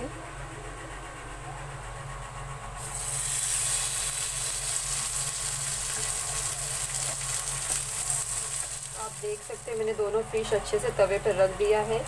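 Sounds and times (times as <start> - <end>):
fish sizzling in hot oil: 2.8 - 10.0.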